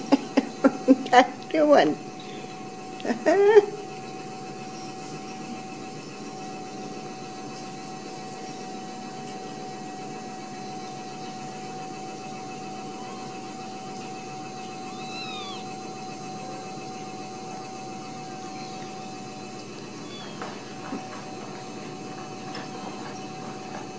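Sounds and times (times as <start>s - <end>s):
constant hum: 0.0s - 23.9s
kitten mewing: 14.9s - 15.6s, 20.0s - 20.4s.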